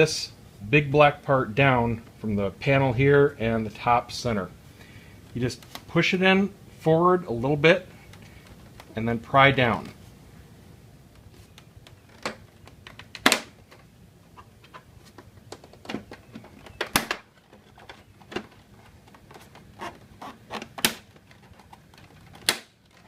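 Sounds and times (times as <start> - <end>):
plastic panel clicking and snapping: 20.5 - 23.0.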